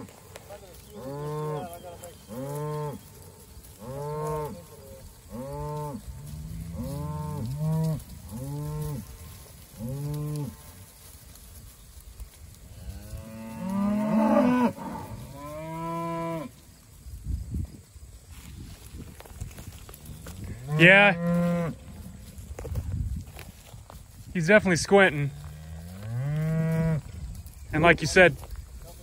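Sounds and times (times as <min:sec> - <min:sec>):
cattle mooing: 0:20.4 - 0:21.8, 0:25.5 - 0:27.0.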